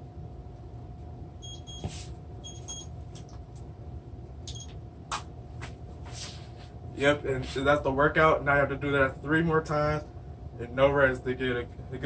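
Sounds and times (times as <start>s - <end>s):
low background hum: 0.0s - 12.0s
smartphone high beeps: 1.4s - 2.9s.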